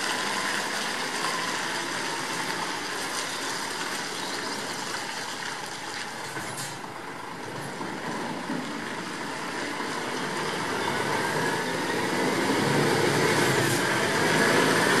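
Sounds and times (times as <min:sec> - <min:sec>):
truck engine pulling away: 0:09.6 - 0:15.0.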